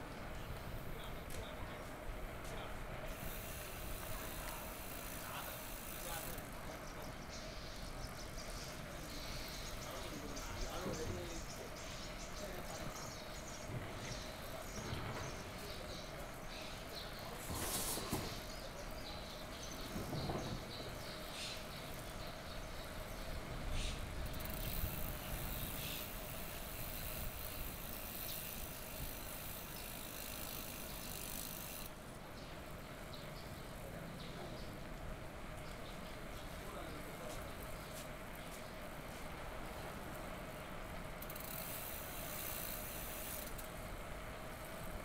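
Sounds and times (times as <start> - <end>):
high hiss: 3.1 - 6.5, 23.7 - 31.9
bicycle clicks and knocks: 24.2 - 32.0, 40.9 - 44.2.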